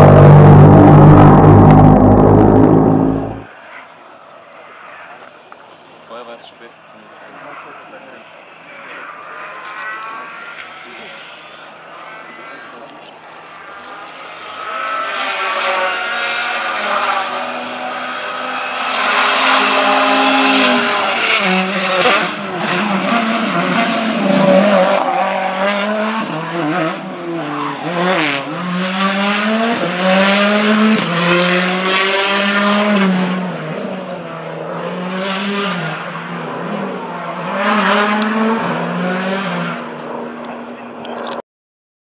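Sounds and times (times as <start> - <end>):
rally car engine revving: 0.0 - 3.5, 7.2 - 41.4.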